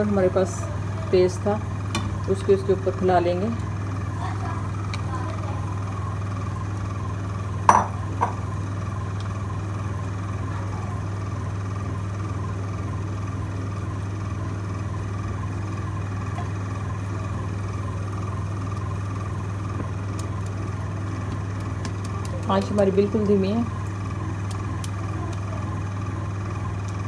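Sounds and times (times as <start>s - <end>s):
steady low hum: 0.0s - 27.0s
spatula knocking on frying pan: 7.7s - 8.4s.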